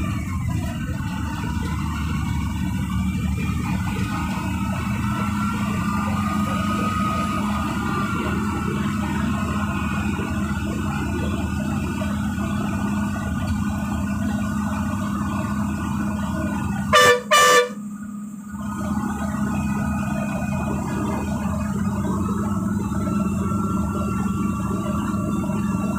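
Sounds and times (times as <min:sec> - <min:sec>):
bus engine running: 0:00.0 - 0:25.9
bus horn blasts: 0:16.8 - 0:18.0.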